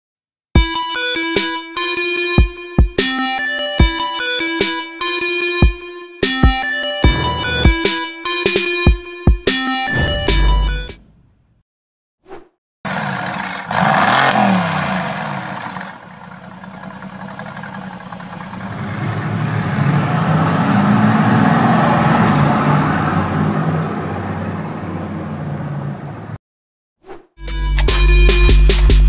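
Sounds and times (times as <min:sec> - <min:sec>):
car engine revving: 0:07.0 - 0:08.1, 0:12.9 - 0:26.3.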